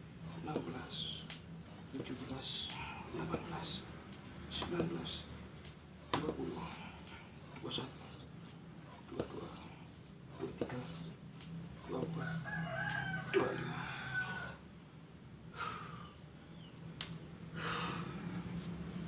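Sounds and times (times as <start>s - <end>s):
hand pump strokes: 7.4s - 12.5s
rooster crowing: 12.0s - 14.7s.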